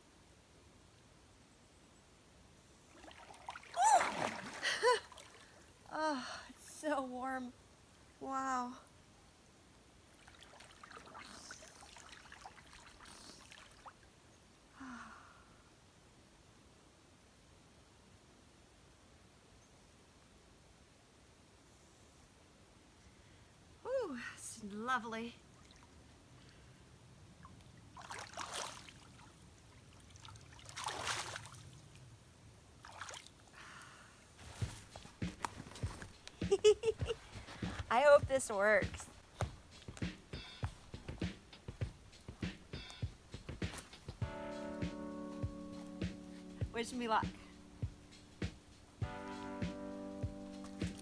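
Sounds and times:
water splashing and trickling: 2.7s - 8.7s, 10.0s - 14.2s, 24.4s - 33.6s.

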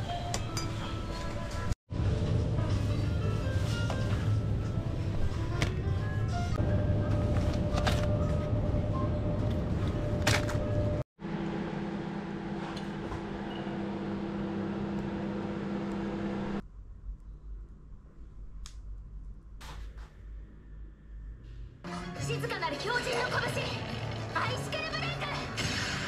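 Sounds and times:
microwave oven humming: 6.6s - 16.6s.

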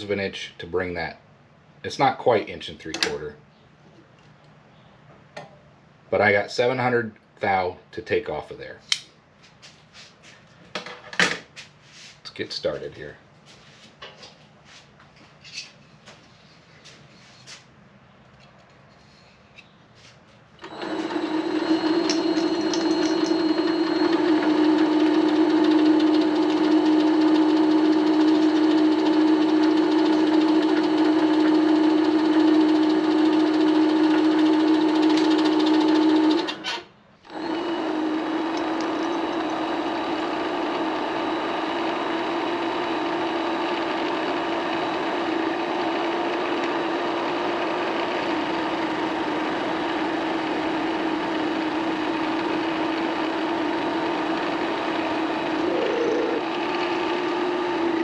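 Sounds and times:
lathe whining while turning steel: 20.6s - 36.6s, 37.3s - 55.7s, 56.3s - 58.0s.

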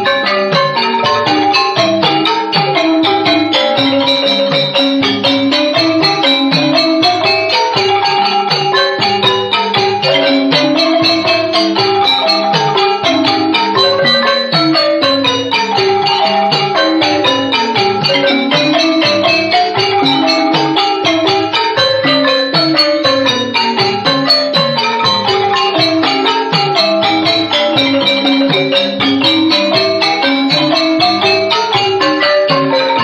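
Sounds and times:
xylophones and gongs ensemble music: 0.0s - 33.0s.

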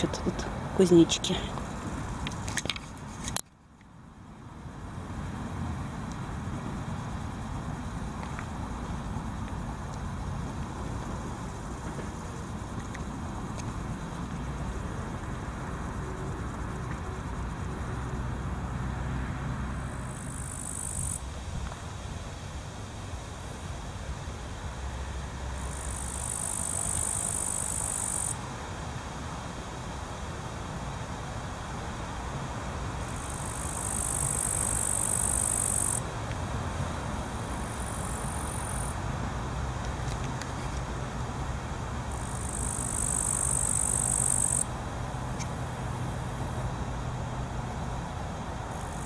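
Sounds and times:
grasshopper chirping: 0.0s - 28.4s, 29.0s - 49.0s
traffic rumble on bridge: 0.0s - 49.0s.

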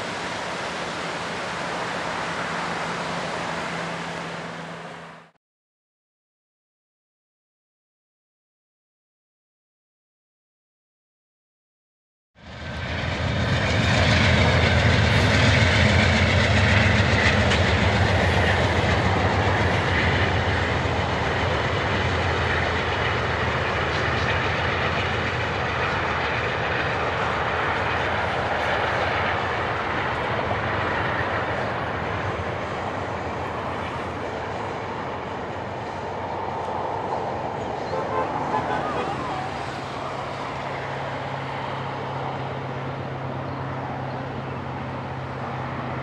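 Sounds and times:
diesel locomotive hum: 0.0s - 5.4s, 12.4s - 46.0s
train cars rumbling and clattering: 12.5s - 46.0s.

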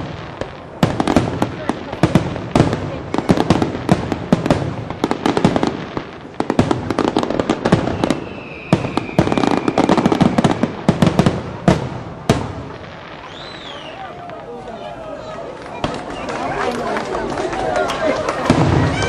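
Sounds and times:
fireworks bursting: 0.0s - 19.0s
thin steady whistle: 7.9s - 10.8s, 13.2s - 14.2s.

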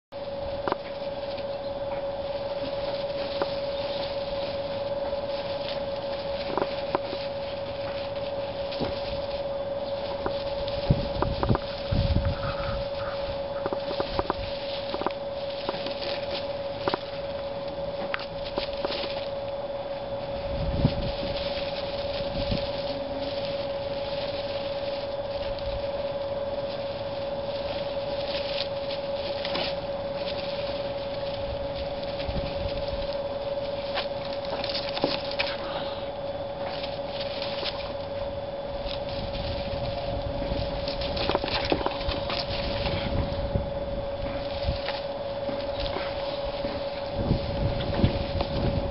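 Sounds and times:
animals rustling in dry hay: 0.1s - 48.9s
high hum: 0.1s - 48.9s
crackly scratches: 0.2s - 48.9s
wind thumps on microphone: 10.2s - 15.1s, 20.4s - 22.8s, 38.5s - 48.9s.

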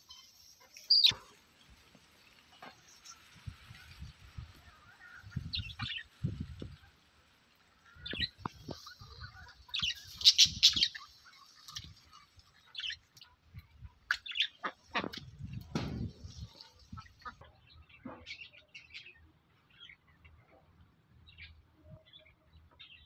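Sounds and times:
budgerigars chirping and chattering: 5.0s - 6.1s, 8.0s - 11.9s.

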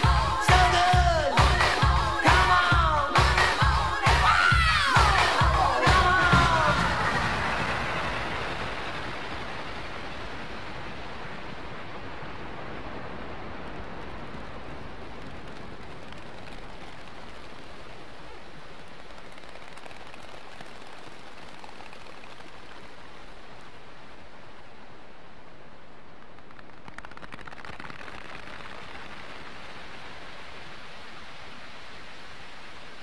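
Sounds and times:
music: 0.0s - 8.1s
vinyl record surface hiss: 0.0s - 33.0s.

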